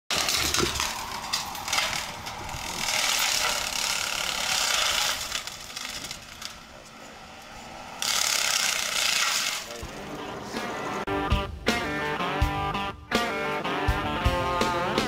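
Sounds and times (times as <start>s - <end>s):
crackle of snapping wood: 0.1s - 6.7s, 8.0s - 9.7s
brush cutter chopping brush: 0.1s - 7.2s, 8.0s - 9.8s.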